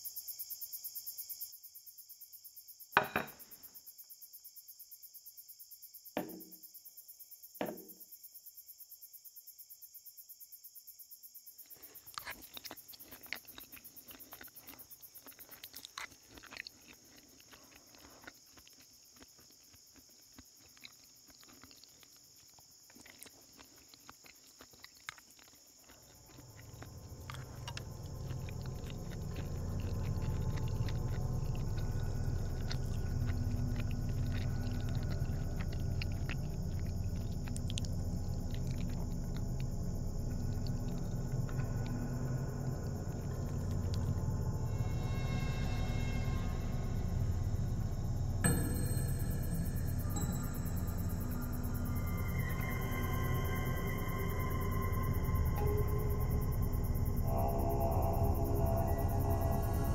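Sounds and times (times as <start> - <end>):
insects chirring: 0.0 - 59.9
low rumble: 26.4 - 59.9.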